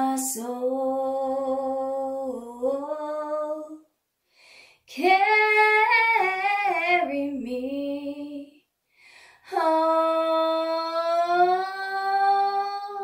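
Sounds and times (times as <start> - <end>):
woman singing unaccompanied: 0.0 - 3.8, 4.9 - 8.6, 9.4 - 13.0
short breath: 4.2 - 4.9, 8.8 - 9.5.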